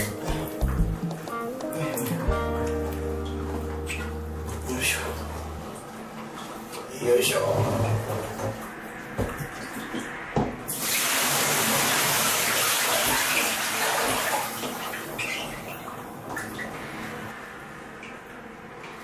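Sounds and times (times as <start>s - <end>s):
water running and splashing: 10.7s - 16.8s.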